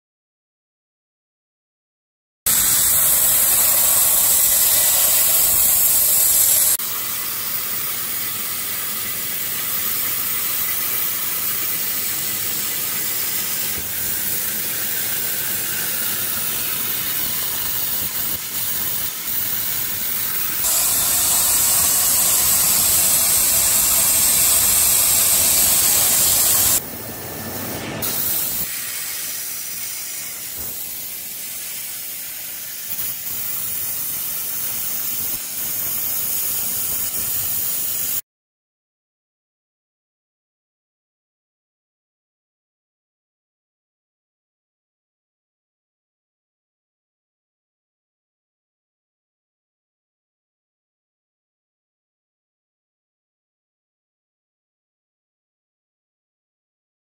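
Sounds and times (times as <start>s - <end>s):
plasma cutting torch hissing: 2.5s - 38.2s.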